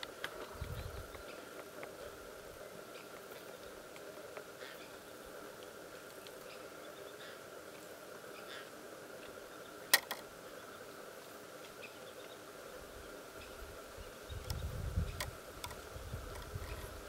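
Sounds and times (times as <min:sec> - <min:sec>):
faint insect hum: 0:00.0 - 0:17.0
sharp clicks: 0:09.9 - 0:10.2.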